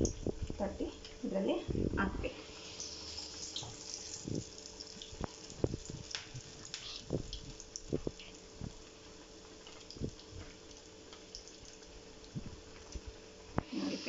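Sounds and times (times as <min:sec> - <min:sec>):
steady low hiss: 0:00.0 - 0:14.0.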